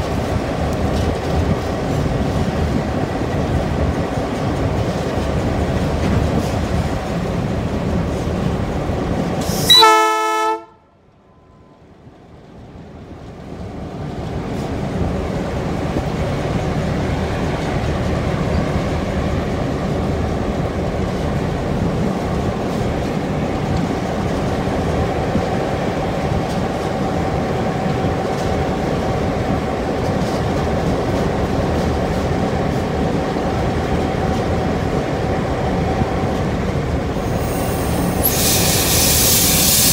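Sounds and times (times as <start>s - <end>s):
diesel locomotive running: 0.0s - 39.9s
locomotive horn blast: 9.6s - 11.0s.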